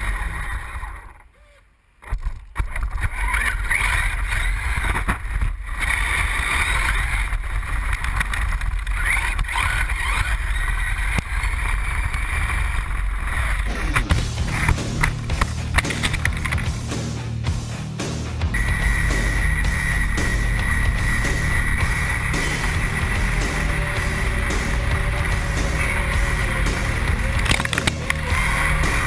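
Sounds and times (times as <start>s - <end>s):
electric motor whining: 3.0s - 16.6s, 18.5s - 29.0s
tyres rumbling on gravel: 18.5s - 29.0s.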